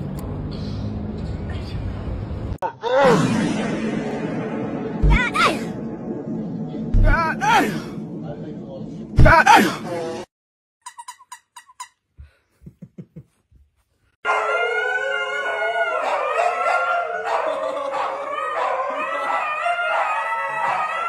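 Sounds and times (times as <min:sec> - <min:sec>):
squeaky toy squeaks: 0:10.8 - 0:12.0
huskies howling together: 0:14.3 - 0:21.0.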